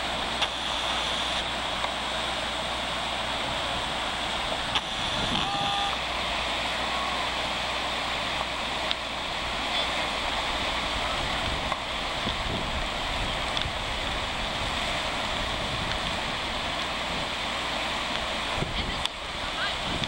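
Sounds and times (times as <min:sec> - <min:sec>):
floodwater rushing: 0:00.0 - 0:20.0.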